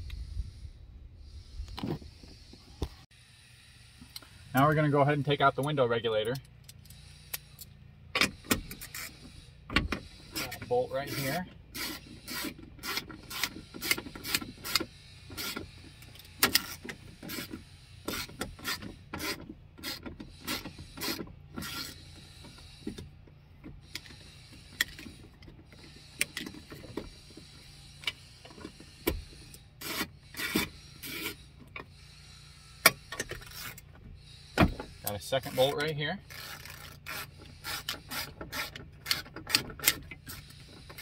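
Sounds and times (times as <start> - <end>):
hand ratchet clicking: 10.0 - 23.1, 32.6 - 41.0
metal parts rattling in car door: 32.8 - 41.0.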